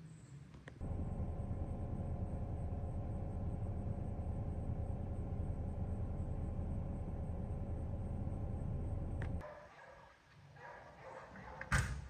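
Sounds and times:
vehicle engine low rumble: 0.7 - 9.4.

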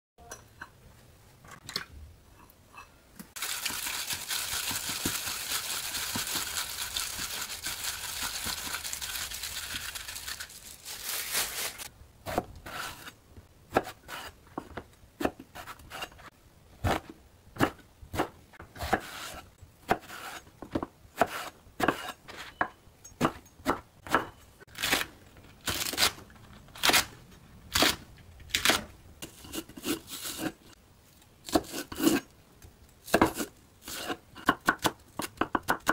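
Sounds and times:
knife chopping on wooden board: 16.8 - 22.1.

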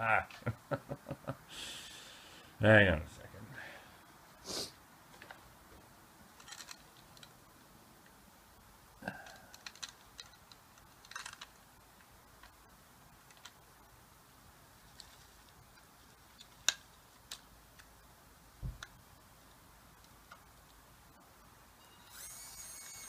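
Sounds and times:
fingers clicking on plastic model: 9.2 - 11.5.

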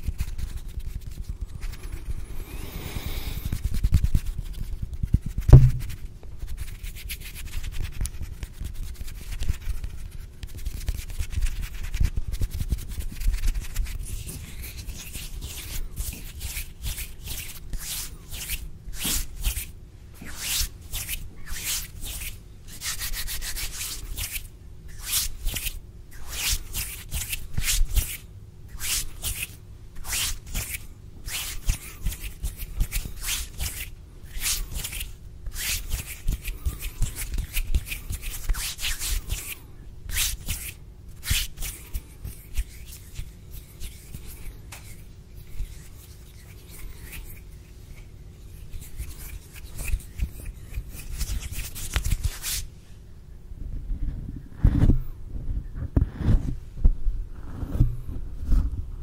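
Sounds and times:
fingers brushing microphone grille: 0.0 - 28.2
hands rubbing: 0.0 - 52.7
knock on microphone: 5.5 - 6.0.

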